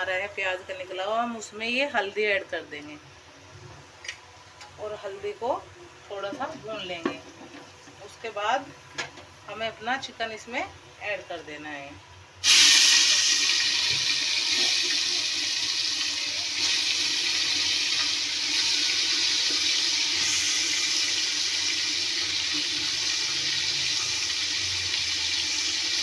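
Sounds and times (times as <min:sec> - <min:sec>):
chicken sizzling in hot oil: 0:12.4 - 0:26.0.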